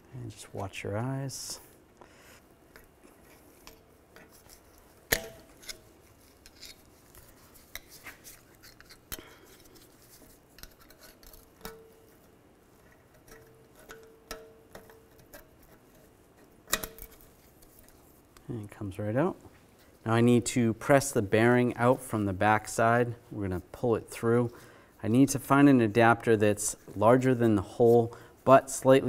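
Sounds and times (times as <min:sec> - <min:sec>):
screwdriver scraping metal ring: 0:03.2 - 0:18.0.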